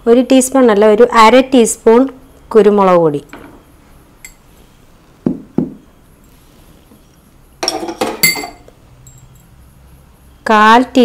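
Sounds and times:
spoon clinking against glass: 7.6 - 9.5.

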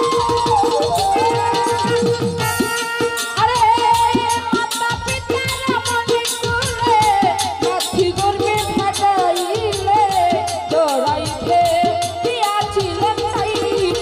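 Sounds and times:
held melody line: 0.0 - 5.7
hand drum beat: 0.0 - 14.0
rattling percussion: 0.0 - 14.0
woman singing: 0.0 - 14.0.

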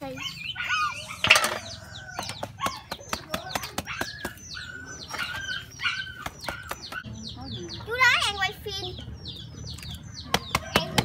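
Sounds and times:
birds calling: 0.0 - 11.0
shells and eels clattering: 1.2 - 1.8.

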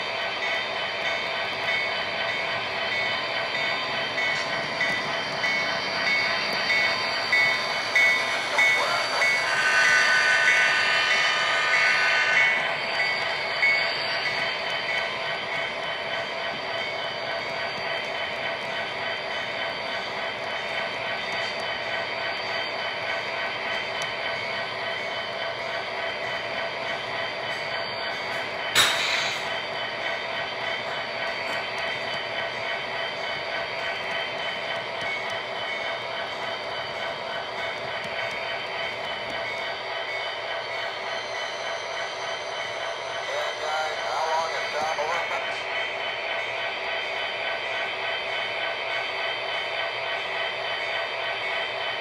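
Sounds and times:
model train humming: 0.0 - 52.0
sharp click: 28.8 - 29.5.

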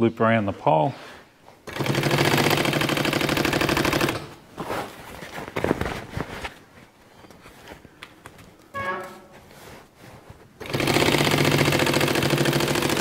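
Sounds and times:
sewing machine stitching: 1.7 - 4.4, 10.6 - 13.0
fabric handling clicks and rustles: 4.3 - 8.7.

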